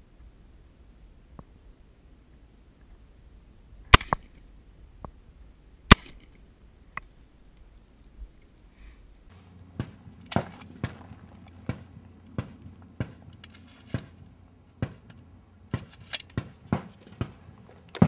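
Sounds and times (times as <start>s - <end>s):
steady low hum: 0.0s - 18.0s
gunshots: 9.7s - 18.0s.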